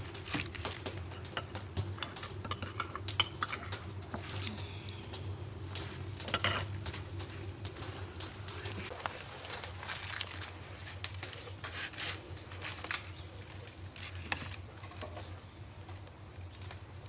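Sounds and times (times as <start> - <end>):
low steady hum: 0.0 - 17.0
parchment paper crinkling: 5.8 - 15.3.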